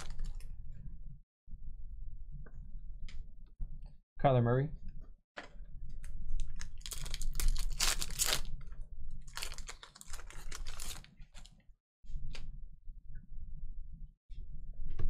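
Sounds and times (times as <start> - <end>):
foil wrappers tearing and crinkling: 0.0 - 0.4, 6.4 - 8.6, 9.2 - 11.5.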